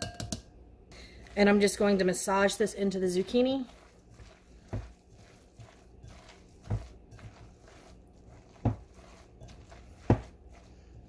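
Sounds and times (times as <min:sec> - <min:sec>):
hands squishing zucchini: 0:01.1 - 0:11.0.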